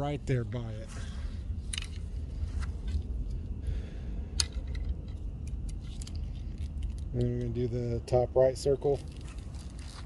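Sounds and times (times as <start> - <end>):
steady low rumble: 0.0 - 10.0
light clicks and small rattles: 4.3 - 7.9.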